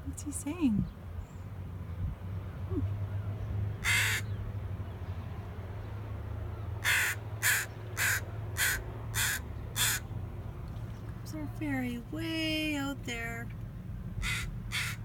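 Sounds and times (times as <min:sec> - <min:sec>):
crow cawing: 0:03.8 - 0:04.3, 0:06.8 - 0:10.1, 0:14.2 - 0:15.0.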